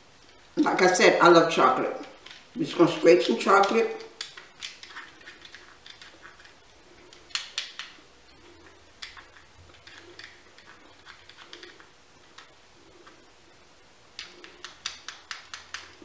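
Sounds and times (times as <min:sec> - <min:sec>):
peeler scraping chocolate: 0:01.9 - 0:13.3.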